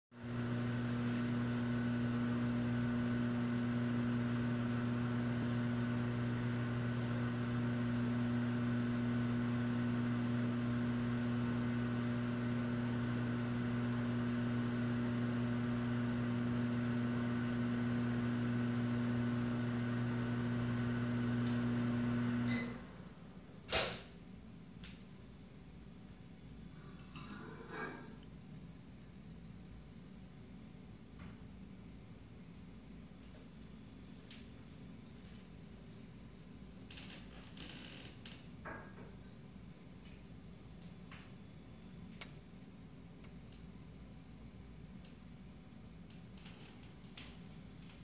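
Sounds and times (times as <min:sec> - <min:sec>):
low machine hum: 0:00.2 - 0:23.3.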